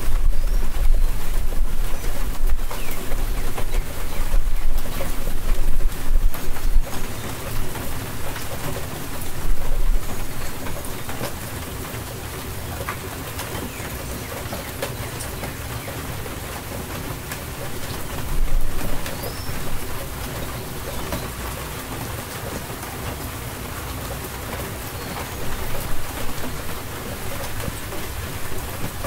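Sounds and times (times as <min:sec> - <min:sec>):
steady rain hiss: 0:00.0 - 0:29.0.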